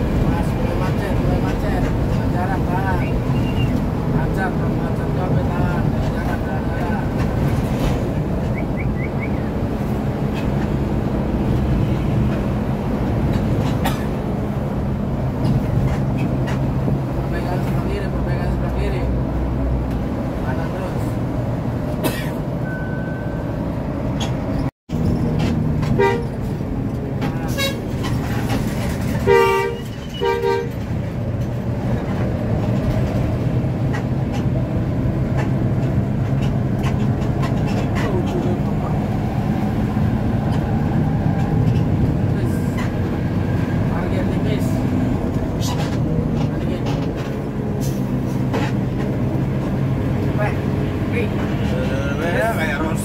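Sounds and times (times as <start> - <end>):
bus engine drone: 0.0 - 53.0
road rumble: 0.0 - 53.0
vehicle horn two-note blasts: 26.0 - 26.3, 29.3 - 30.8.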